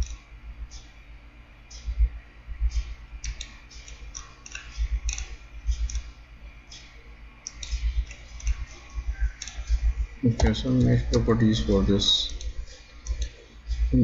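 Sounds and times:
computer mouse clicking: 0:02.7 - 0:06.1, 0:06.7 - 0:09.8, 0:12.3 - 0:13.4.

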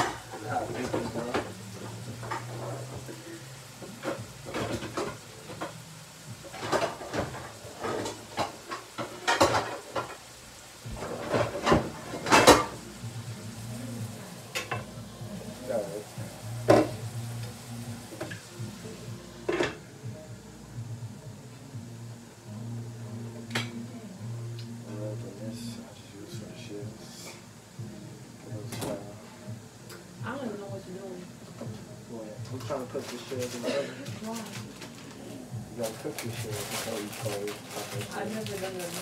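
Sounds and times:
metal pots and pans clanking: 0:00.0 - 0:03.2, 0:03.8 - 0:05.8, 0:06.4 - 0:10.2, 0:10.9 - 0:12.8, 0:14.5 - 0:14.9, 0:16.7 - 0:17.0, 0:19.5 - 0:19.8
meat sizzling in a frying pan: 0:00.0 - 0:39.0.

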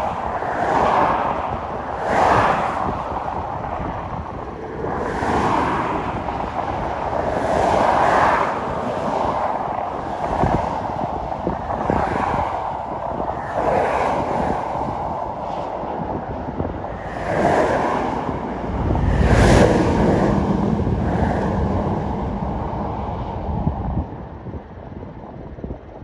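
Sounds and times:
car tyre and road noise: 0:00.0 - 0:26.0
wind rushing over microphone: 0:00.0 - 0:26.0.

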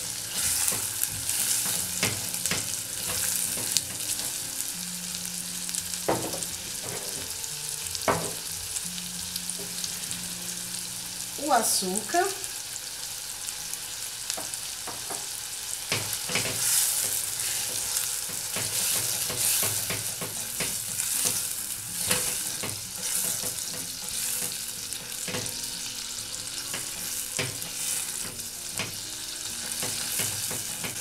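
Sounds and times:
spatula scraping and tapping pan: 0:00.0 - 0:04.4, 0:06.1 - 0:07.4, 0:14.3 - 0:25.7, 0:26.5 - 0:31.0
fruit pulp sizzling in saucepan: 0:00.0 - 0:31.0.

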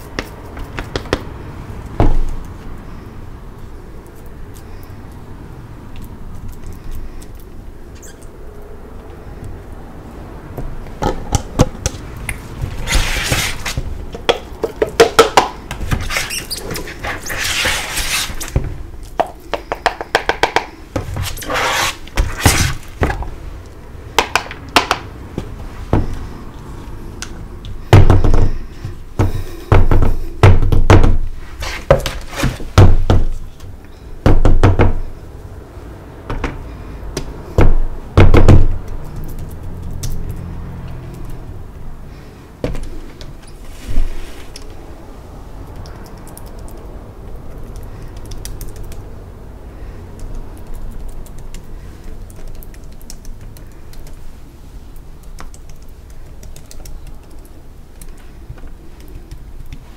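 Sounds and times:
crumbly scraping and rustling: 0:11.8 - 0:14.2.

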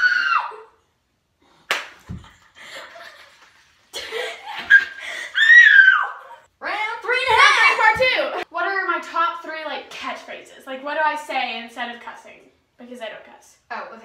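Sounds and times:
high cry: 0:00.0 - 0:00.8, 0:05.2 - 0:06.5.

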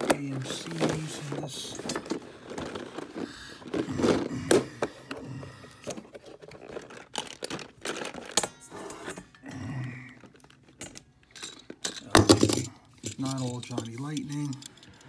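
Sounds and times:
plastic case clicks and scrapes: 0:00.0 - 0:05.2
toy cars rattling: 0:00.0 - 0:05.2, 0:05.8 - 0:09.4, 0:10.2 - 0:15.0.

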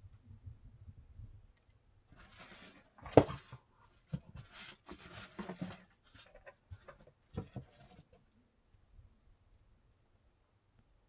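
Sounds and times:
books rustling in packing: 0:02.2 - 0:08.2.

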